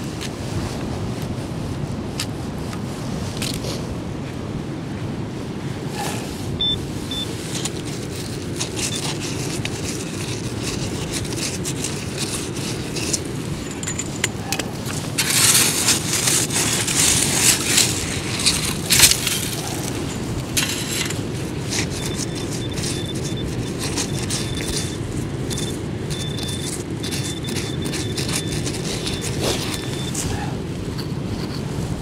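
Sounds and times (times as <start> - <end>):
scraping and crunching through shingle: 7.3 - 32.0.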